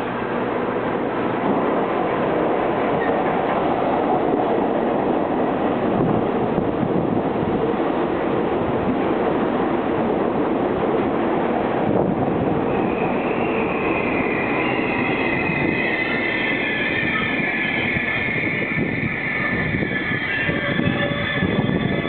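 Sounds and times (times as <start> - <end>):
subway train rumbling on rails: 0.0 - 22.0
wheels and brakes squealing: 12.7 - 22.0.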